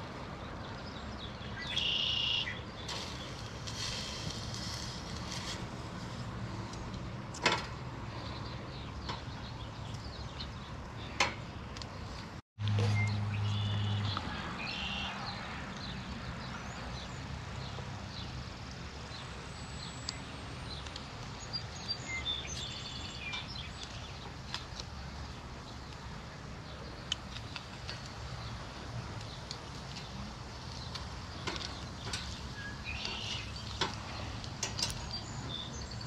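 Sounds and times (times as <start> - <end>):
songbirds chirping: 0.0 - 36.0
outdoor hiss: 1.5 - 6.8.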